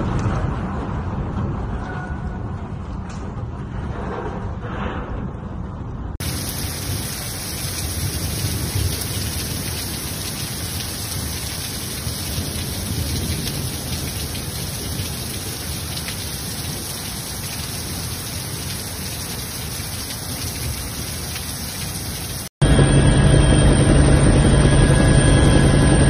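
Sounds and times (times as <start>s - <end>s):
heavy rain hissing: 6.2s - 22.5s.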